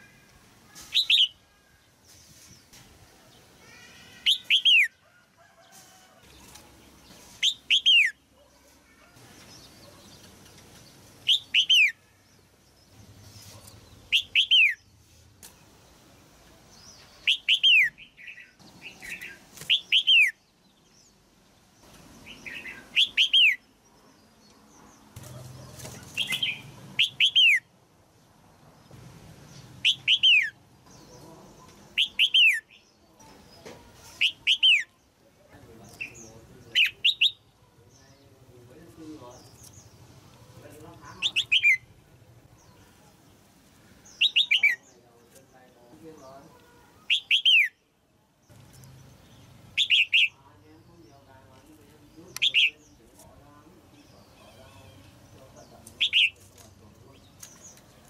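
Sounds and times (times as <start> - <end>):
bulbul calling: 4.2 - 5.0, 7.4 - 10.3, 11.2 - 12.1, 13.2 - 15.6, 16.7 - 20.4, 22.2 - 23.7, 25.2 - 27.7, 29.5 - 35.0, 35.8 - 38.2, 39.4 - 43.2, 44.0 - 45.0, 46.2 - 47.8, 48.7 - 51.2, 52.1 - 53.2, 54.0 - 58.0.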